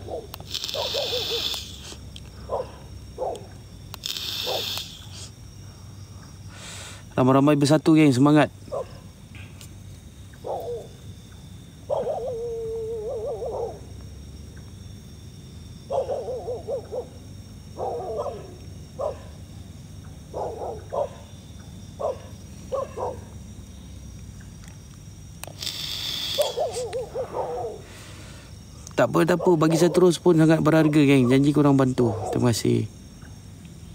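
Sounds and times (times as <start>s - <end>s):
dog barking and whining: 0.0s - 1.6s, 2.5s - 3.6s, 4.4s - 4.8s, 8.7s - 9.1s, 10.4s - 11.0s, 11.9s - 13.9s, 15.9s - 17.2s, 17.8s - 19.4s, 20.2s - 21.3s, 22.0s - 23.3s, 26.4s - 27.8s
burst of hiss: 0.4s - 2.1s, 3.9s - 5.4s, 25.4s - 26.9s
dog howling: 11.9s - 13.9s, 15.9s - 17.2s, 22.0s - 23.3s.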